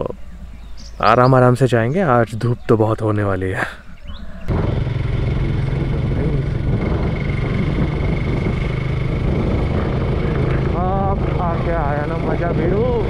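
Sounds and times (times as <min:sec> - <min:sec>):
road and wind noise: 0:00.0 - 0:13.0
motorcycle engine running: 0:04.5 - 0:13.0.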